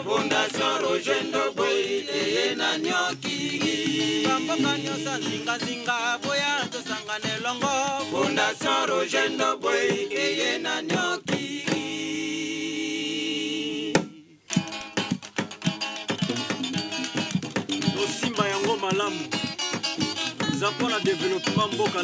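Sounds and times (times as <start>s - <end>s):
person singing: 0.0s - 9.2s, 17.7s - 22.0s
percussive beats: 0.0s - 12.0s, 14.0s - 22.0s
electric guitar: 14.5s - 22.0s.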